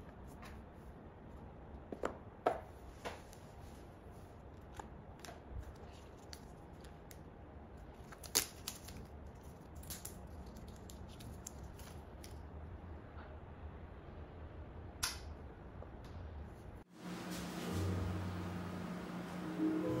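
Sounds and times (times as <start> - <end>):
paper wrap peeling: 7.9 - 12.3.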